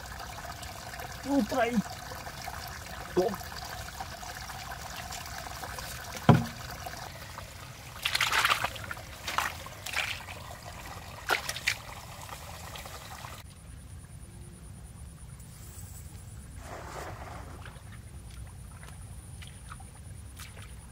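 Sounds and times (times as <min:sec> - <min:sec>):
water trickling: 0:00.0 - 0:13.4
sharp thump: 0:06.2 - 0:06.6
hands scooping wet mud: 0:08.0 - 0:10.3.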